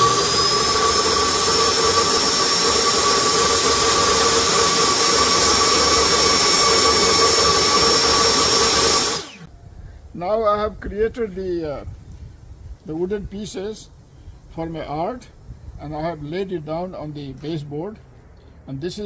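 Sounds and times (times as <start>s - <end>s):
table saw whining: 0.0s - 9.5s.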